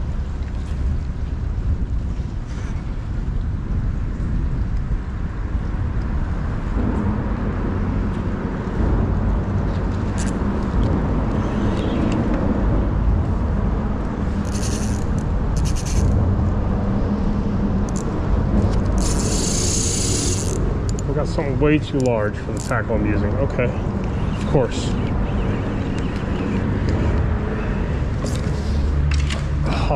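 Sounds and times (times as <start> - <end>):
wind buffeting microphone: 0.0 - 29.9
rattling clicks: 14.4 - 16.2.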